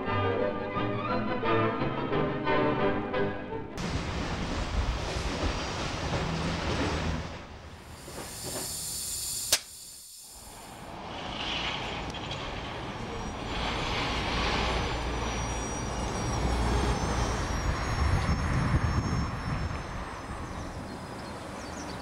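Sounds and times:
locomotive hiss and rumble: 3.8 - 22.0
high-pitched whine: 7.8 - 21.5
sharp click: 9.5 - 9.8.

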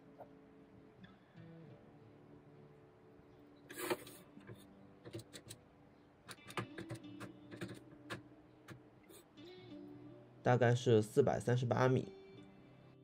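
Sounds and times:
soft guitar music: 0.0 - 13.0.

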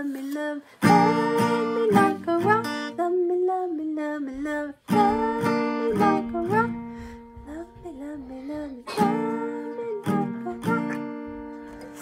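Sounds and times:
acoustic guitar strumming: 0.8 - 3.0, 4.9 - 7.4, 8.9 - 12.0.

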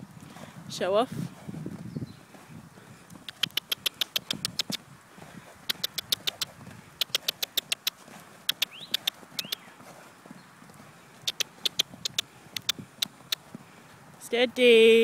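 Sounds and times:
horse cantering on soft dirt: 0.0 - 15.0
sharp clicks: 3.1 - 4.8, 5.6 - 9.7, 11.2 - 13.5.

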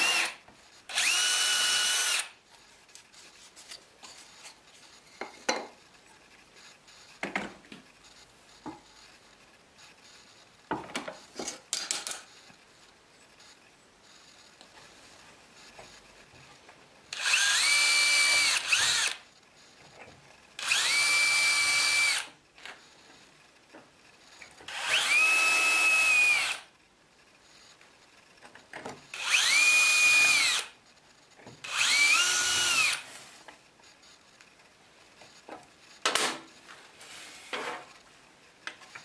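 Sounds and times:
cordless drill whining: 0.0 - 2.4, 17.1 - 19.2, 20.6 - 22.3, 24.7 - 26.6, 29.1 - 30.7, 31.6 - 33.0.

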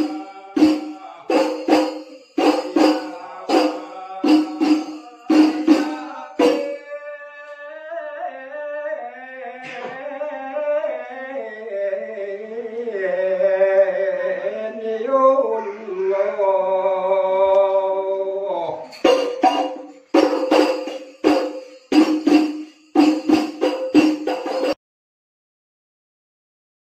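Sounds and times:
frame drums in quick rhythm: 0.0 - 6.9, 18.9 - 24.8
voice chanting with wavering notes: 2.8 - 18.9.

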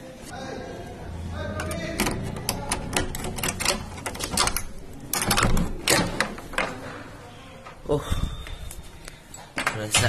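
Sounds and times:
door lock clicking and rattling: 1.6 - 6.8.

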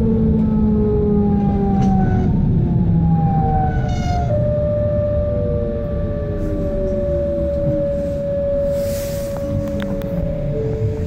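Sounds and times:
wheels rumbling on rails: 0.0 - 11.0
electric train motors whining: 5.4 - 11.0.

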